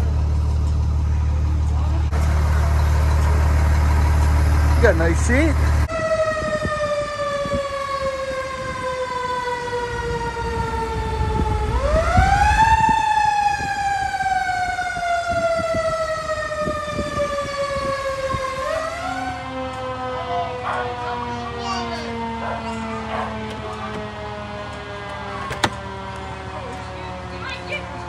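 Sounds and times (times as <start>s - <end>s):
low rumble: 0.0s - 5.9s
fire engine siren wailing: 0.0s - 28.0s.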